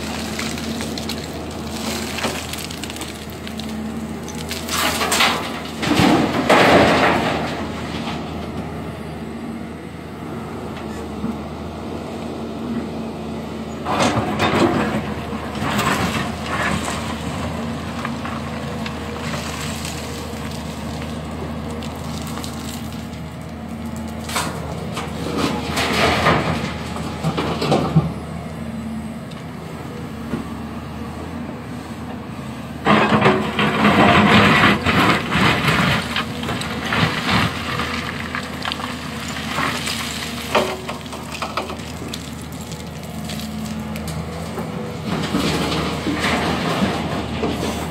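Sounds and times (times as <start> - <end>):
rock clattering and scraping: 0.0 - 8.2, 14.0 - 23.2, 32.9 - 47.9
diesel excavator engine running: 0.0 - 47.9.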